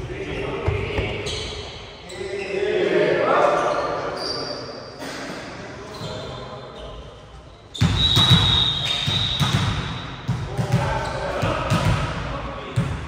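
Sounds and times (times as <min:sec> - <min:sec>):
voices: 0:00.0 - 0:07.1
volleyball bouncing on gym floor: 0:07.8 - 0:12.2.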